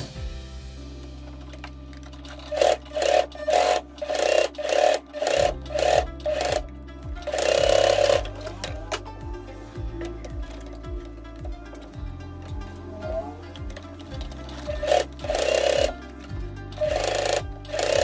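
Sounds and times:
background music: 0.0 - 18.0
sewing machine stitching: 2.2 - 6.6, 7.2 - 8.7, 14.0 - 16.0, 16.8 - 18.0.

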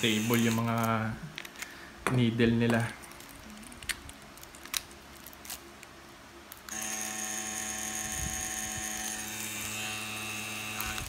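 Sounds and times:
tattoo machine humming: 0.0 - 0.9, 6.7 - 11.0.

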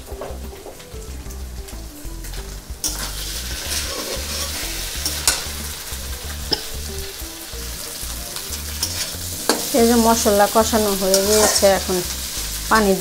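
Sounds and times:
potatoes sizzling in a pan: 0.0 - 13.0
metal spatula stirring: 2.8 - 13.0.

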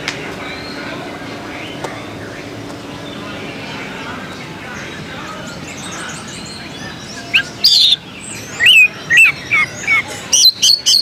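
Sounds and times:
faint background bird chirping: 0.3 - 11.0
bird singing loudly: 5.4 - 11.0.

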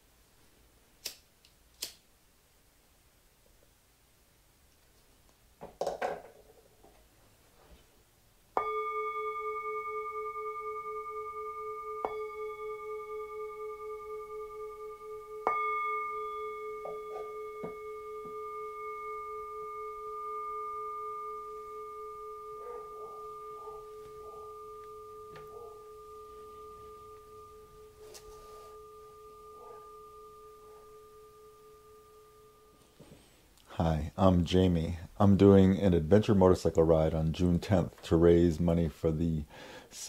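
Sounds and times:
singing bowl struck and ringing: 8.6 - 33.1.

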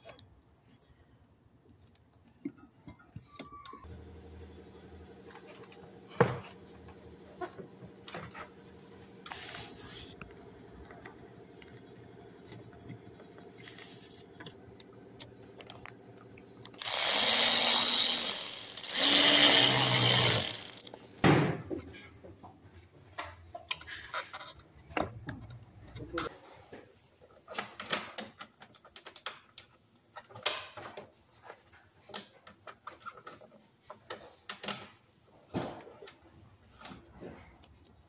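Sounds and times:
cordless power tool running: 3.8 - 12.8, 16.7 - 21.0.

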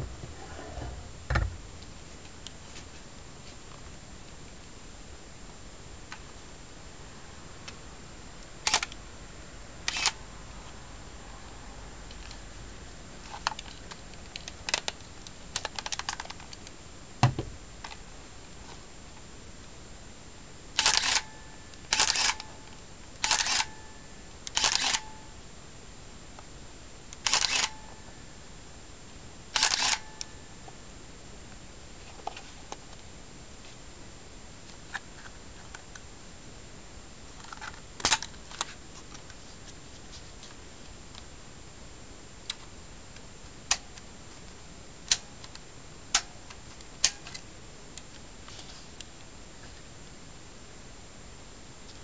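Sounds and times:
camera shutter clack: 9.9 - 10.2, 20.8 - 21.3, 21.9 - 22.5, 23.2 - 23.7, 24.6 - 25.1, 27.2 - 27.8, 29.6 - 30.2
camera motor winding: 27.2 - 27.7.

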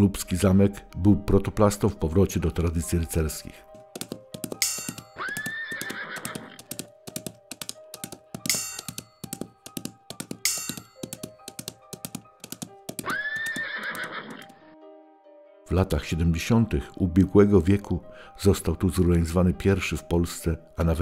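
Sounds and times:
background music: 0.0 - 21.0
horse hooves clip-clopping: 4.0 - 14.5
horse whinnying: 5.2 - 6.6, 13.0 - 14.5.

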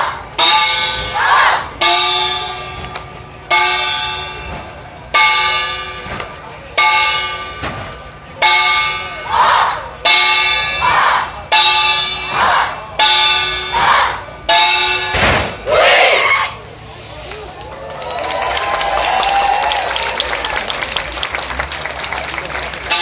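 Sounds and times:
deep bell ringing: 0.3 - 15.2
group shouts: 1.1 - 1.7, 10.8 - 11.3, 13.7 - 14.2, 15.6 - 16.6.

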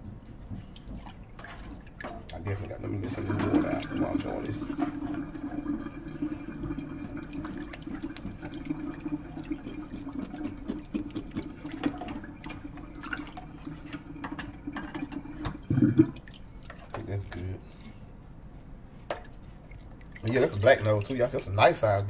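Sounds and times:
water sloshing in a sink: 0.0 - 18.2, 18.8 - 22.0.

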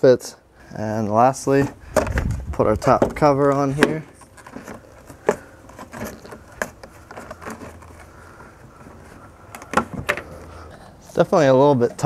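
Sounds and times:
plastic cover clicking and scraping: 1.6 - 10.6.

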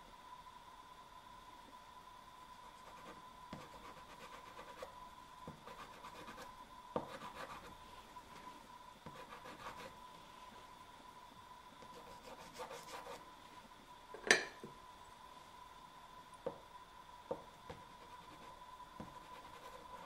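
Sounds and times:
pastel scratching on paper: 2.7 - 4.9, 5.6 - 7.7, 9.1 - 9.9, 11.9 - 13.2, 19.1 - 20.0.

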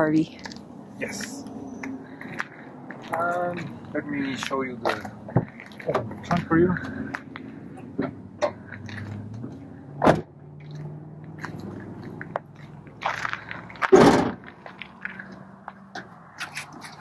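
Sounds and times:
footsteps on gravel: 0.3 - 7.7, 8.6 - 9.6, 10.6 - 17.0
car door shutting: 10.0 - 10.3, 13.9 - 14.4.

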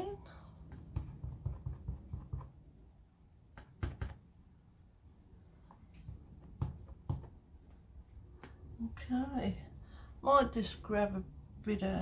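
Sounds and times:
rubber stamp tapping ink pad: 0.7 - 2.7, 3.5 - 4.3, 6.0 - 7.4.

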